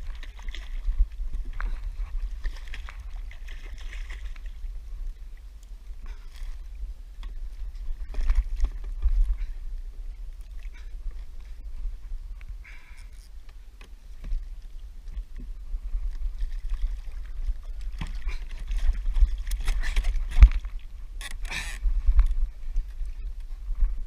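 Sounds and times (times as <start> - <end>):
water splashing: 0.0 - 5.4, 16.1 - 21.8
wind rumbling on microphone: 0.0 - 24.0.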